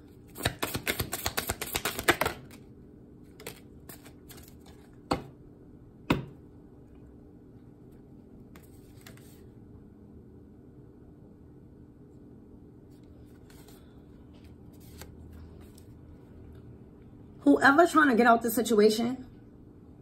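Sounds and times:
cards being shuffled: 0:00.3 - 0:02.6, 0:03.3 - 0:05.0, 0:08.5 - 0:09.5, 0:13.2 - 0:15.9.

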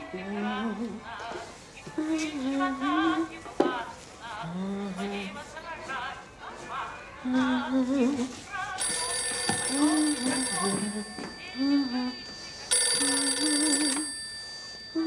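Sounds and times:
woman humming a tune: 0:04.4 - 0:05.3, 0:09.8 - 0:12.3
telephone bell ringing: 0:08.8 - 0:15.0.

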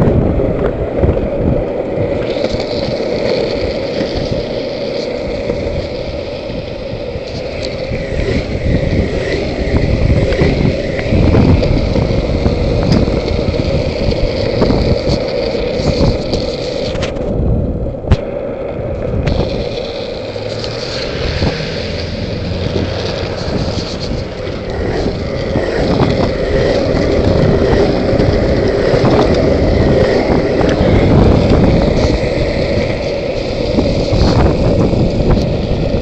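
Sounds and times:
longboard wheels rolling on asphalt: 0:00.0 - 0:36.0.

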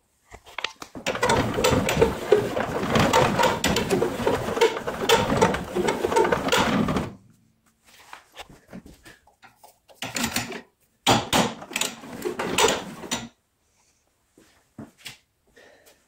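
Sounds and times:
metal gear grinding and rattling: 0:01.1 - 0:07.1.

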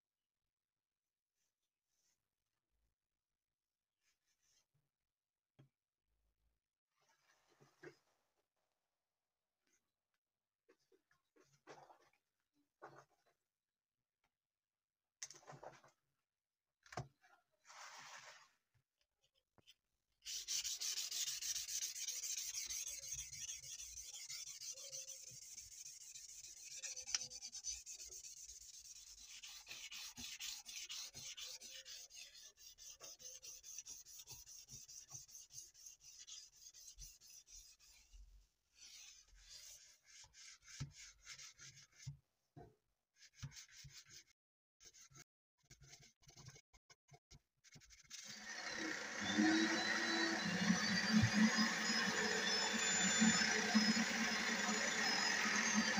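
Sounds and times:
sandpaper rubbing on metal blade: 0:20.2 - 0:38.1.

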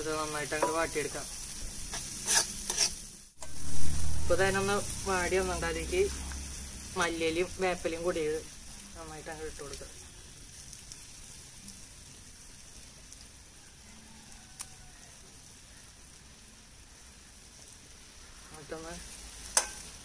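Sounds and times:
onions sizzling in a pan: 0:00.0 - 0:20.0
spatula striking a pan: 0:00.5 - 0:01.1, 0:01.9 - 0:03.0, 0:19.4 - 0:20.0.

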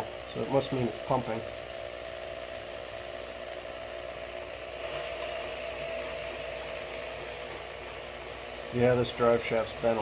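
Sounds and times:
electric drill whining under load: 0:00.0 - 0:10.0.

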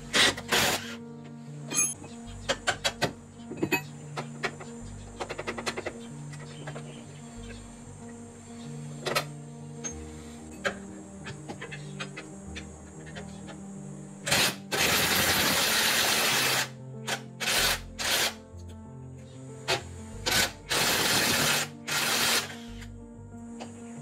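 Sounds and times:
background music: 0:00.0 - 0:24.0
power tool bursts: 0:00.2 - 0:01.0, 0:14.3 - 0:18.4, 0:19.7 - 0:22.9.

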